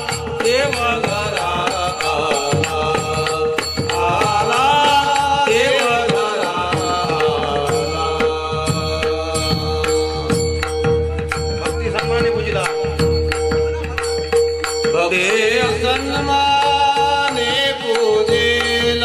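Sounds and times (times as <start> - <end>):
devotional singing: 0.0 - 10.8, 14.9 - 19.0
percussion strikes: 0.0 - 19.0.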